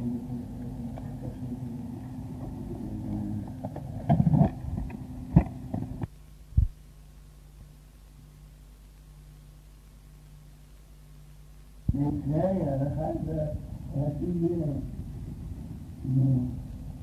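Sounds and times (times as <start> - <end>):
indistinct background voices: 0.0 - 4.1
steady low hum: 0.0 - 17.0.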